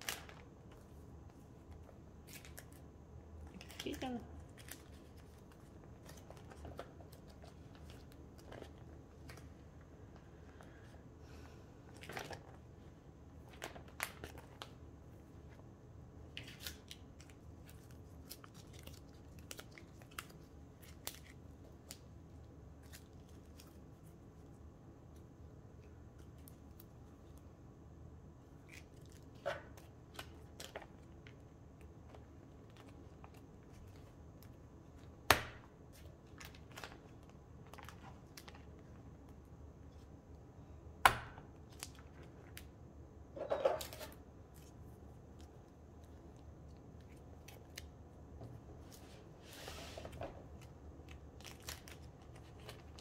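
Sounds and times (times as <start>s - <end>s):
cards sliding in plastic sleeves: 48.8s - 50.3s.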